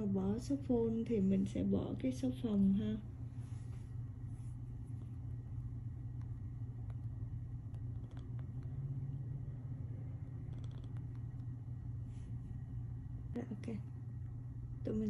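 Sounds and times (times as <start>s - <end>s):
steady low hum: 0.0s - 15.0s
fingertips tapping touchscreen: 6.2s - 8.7s.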